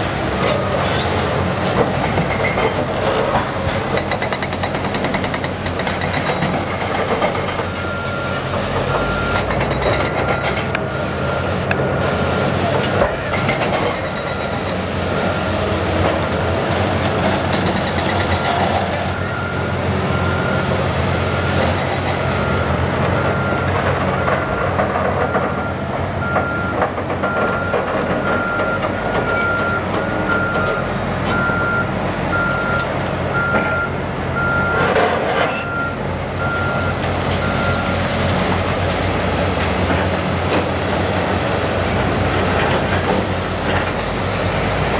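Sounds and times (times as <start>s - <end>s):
diesel engines running: 0.0s - 44.9s
reverse warning alarm beeping: 7.2s - 12.4s, 18.2s - 34.9s, 35.5s - 38.1s.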